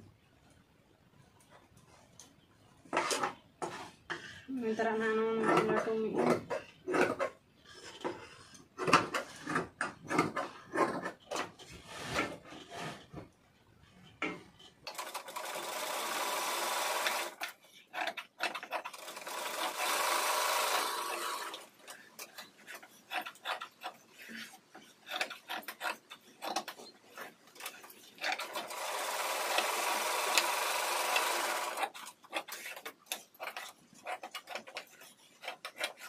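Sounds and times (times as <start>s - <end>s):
sewing machine running: 14.9s - 17.4s, 18.9s - 21.7s, 28.3s - 31.9s.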